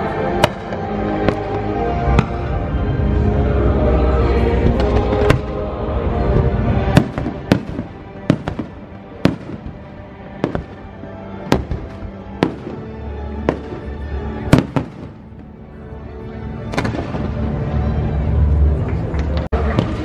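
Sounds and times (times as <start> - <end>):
music playing: 0.0 - 20.0
fireworks bangs: 6.2 - 15.5.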